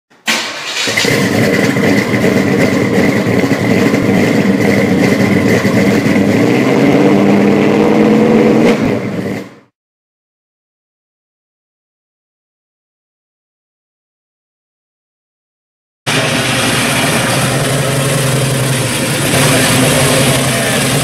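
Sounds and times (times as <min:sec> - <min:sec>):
car engine revving: 0:00.8 - 0:09.7, 0:16.1 - 0:21.0.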